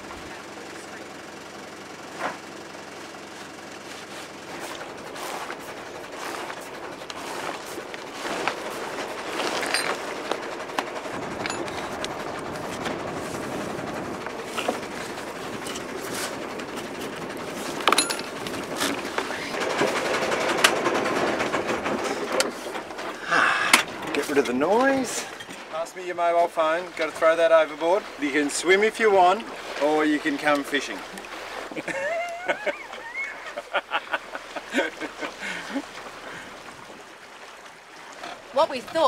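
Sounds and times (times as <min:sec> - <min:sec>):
rushing wind and water: 0:00.0 - 0:39.0
rigging clicks and knocks: 0:14.2 - 0:25.7.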